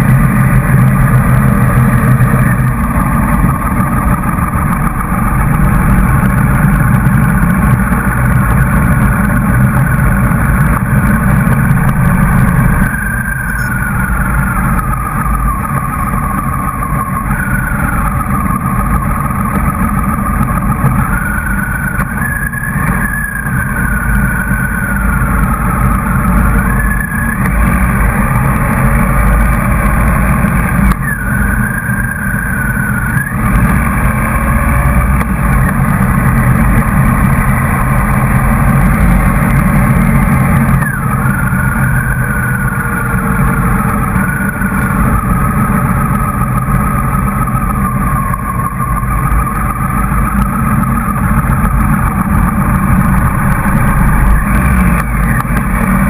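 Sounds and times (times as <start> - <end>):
motorcycle engine: 0.0 - 56.0
whining tone rising and falling: 0.0 - 56.0.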